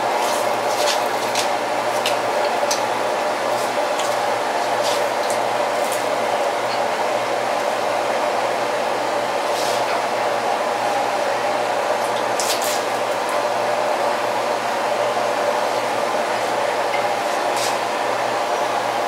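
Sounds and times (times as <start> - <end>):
electric fan whirring: 0.0 - 19.0.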